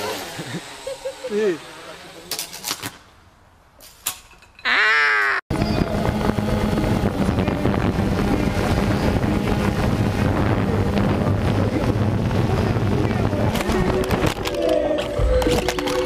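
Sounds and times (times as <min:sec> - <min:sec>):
wind buffeting microphone: 0:05.5 - 0:14.6
drone motors humming: 0:05.5 - 0:16.0.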